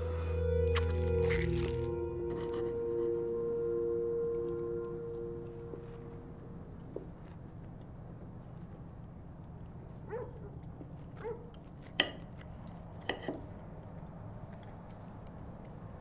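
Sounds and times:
low hum: 0:00.0 - 0:09.3
dog barking: 0:10.0 - 0:11.6.

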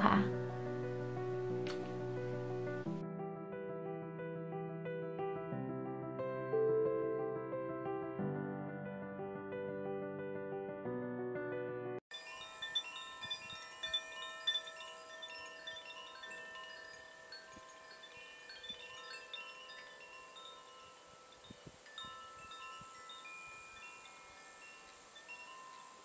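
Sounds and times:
chimes tinkling: 0:12.1 - 0:26.0
steady high hiss: 0:12.1 - 0:26.0.

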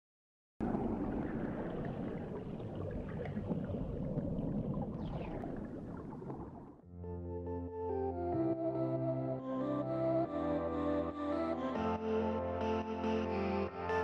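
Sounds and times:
diver exhaling bubbles underwater: 0:00.6 - 0:06.8.

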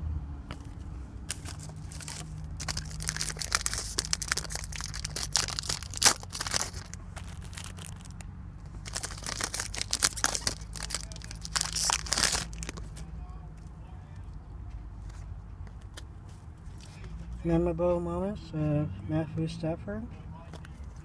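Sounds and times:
cards being handled: 0:00.5 - 0:13.1
foil wrapper crinkling: 0:01.3 - 0:08.2, 0:08.8 - 0:12.9.

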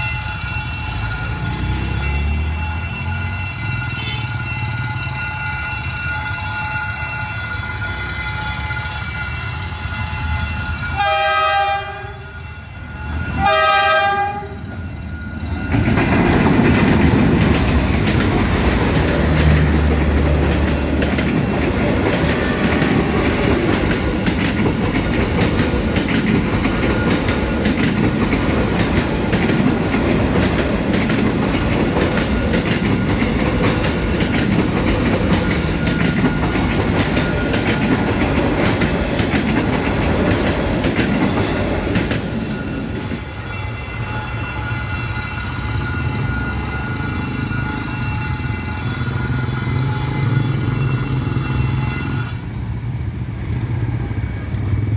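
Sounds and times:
train coaches clattering over rails: 0:00.0 - 0:54.9
train horn blasts: 0:10.9 - 0:12.3, 0:13.4 - 0:14.6.

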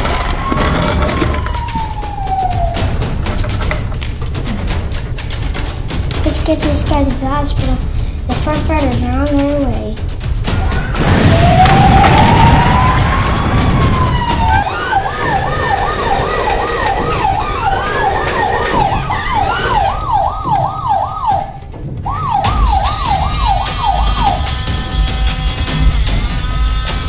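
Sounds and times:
toy siren wailing and yelping: 0:00.2 - 0:02.9, 0:13.8 - 0:21.5, 0:22.1 - 0:24.8.

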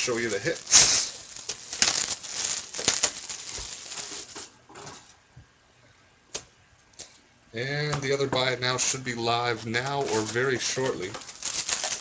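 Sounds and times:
plastic wrap tearing and crinkling: 0:00.0 - 0:04.6, 0:09.8 - 0:12.0.

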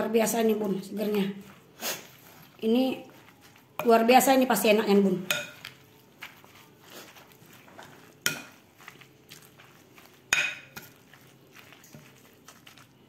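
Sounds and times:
spoon stirring mixture in bowl: 0:00.1 - 0:13.0
spoon clinking against bowl: 0:05.2 - 0:05.9, 0:08.2 - 0:08.6, 0:10.3 - 0:11.0.

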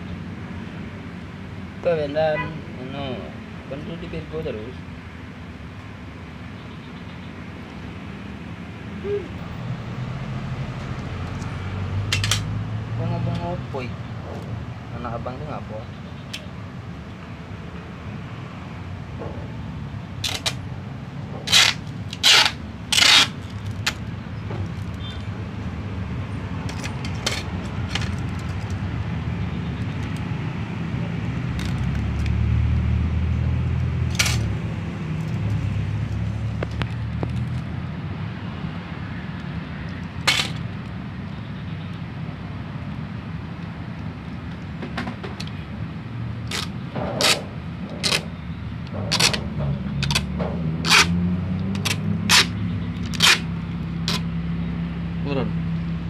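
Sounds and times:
tape ripped off its roll: 0:21.5 - 0:24.0, 0:40.3 - 0:40.6, 0:46.5 - 0:48.2, 0:50.0 - 0:51.2, 0:51.8 - 0:53.5.

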